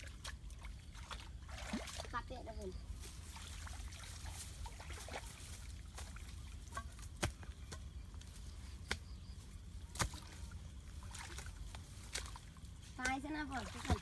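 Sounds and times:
muddy water sloshing: 0.0s - 14.0s
hoe striking muddy earth: 6.6s - 7.9s, 9.9s - 10.5s.

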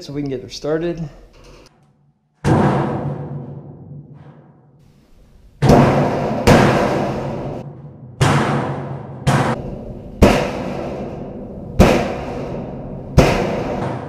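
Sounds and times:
palm striking sheet-metal duct: 2.3s - 14.0s.

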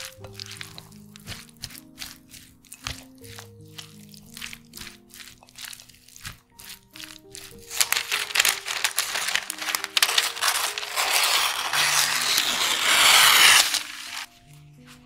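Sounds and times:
light background music: 0.0s - 15.0s
paper rustling: 5.3s - 14.4s
scissors cutting paper: 5.6s - 14.3s.

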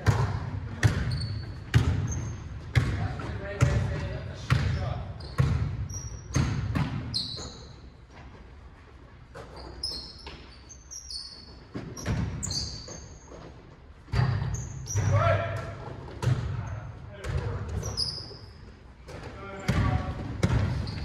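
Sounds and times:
basketball bouncing on hardwood floor: 0.0s - 3.9s, 6.3s - 7.1s, 19.7s - 21.0s
sneakers squeaking: 0.0s - 21.0s.

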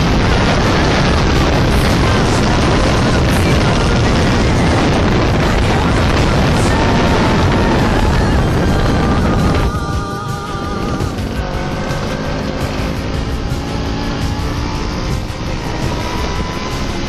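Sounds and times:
moped engines running: 0.0s - 17.0s
wind buffeting microphone: 0.0s - 17.0s.

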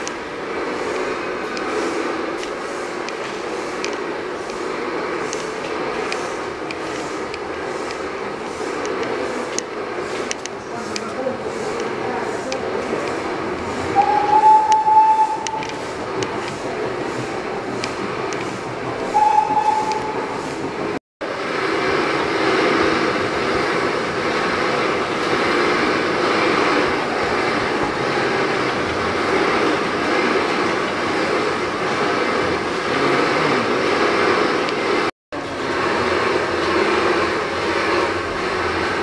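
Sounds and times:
steam engines running: 0.0s - 39.0s
steam hiss: 0.0s - 39.0s
steady whistle tone: 13.9s - 16.1s, 19.0s - 20.7s.

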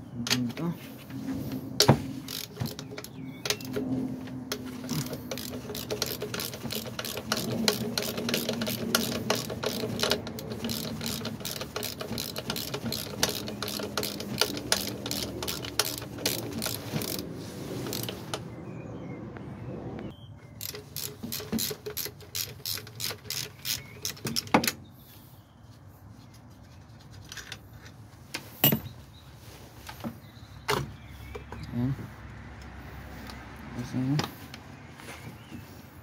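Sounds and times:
ratchet wrench clicking: 2.2s - 3.8s, 4.5s - 17.3s, 17.9s - 18.4s, 20.6s - 24.5s.

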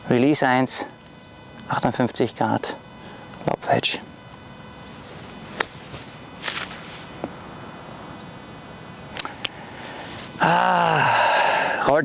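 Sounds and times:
outdoor background noise: 0.0s - 12.0s
faint brushing sound: 5.8s - 7.2s.

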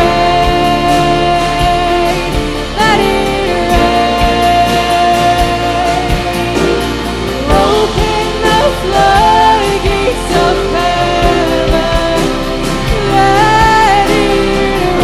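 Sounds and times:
person singing long notes: 0.0s - 15.0s
worship band playing: 0.0s - 15.0s.

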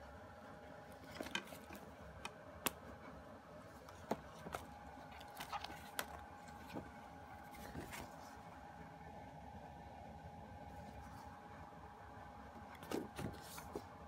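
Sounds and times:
faint steady hum: 0.0s - 14.0s
light clicks and taps handling cd: 3.8s - 6.9s.

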